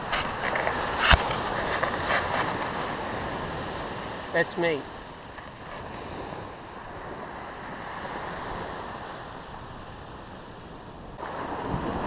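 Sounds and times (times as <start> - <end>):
surf washing onto beach: 0.0 - 12.0
wind buffeting microphone: 4.9 - 12.0.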